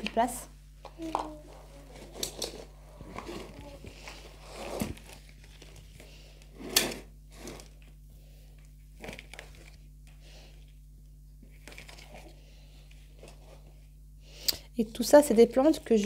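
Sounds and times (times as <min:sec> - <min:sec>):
plastic pot scraping on tiles: 0:02.0 - 0:05.1, 0:06.6 - 0:07.8.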